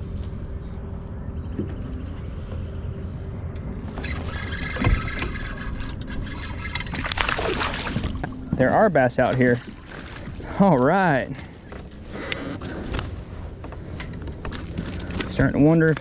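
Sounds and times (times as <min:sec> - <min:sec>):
steady low rumble: 0:00.0 - 0:16.0
water splashing: 0:04.2 - 0:11.4.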